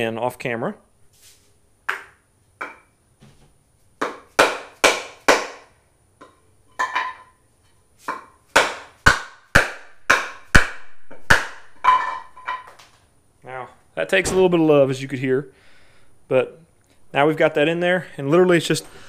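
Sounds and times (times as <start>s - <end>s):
hammer striking wood: 4.0s - 5.7s, 8.1s - 12.1s.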